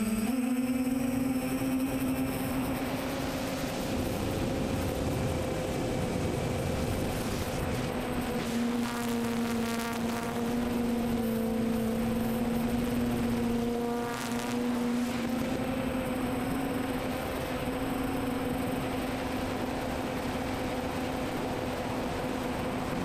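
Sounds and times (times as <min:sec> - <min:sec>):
drone propellers humming: 0:00.0 - 0:23.0
wind rush: 0:01.9 - 0:08.6.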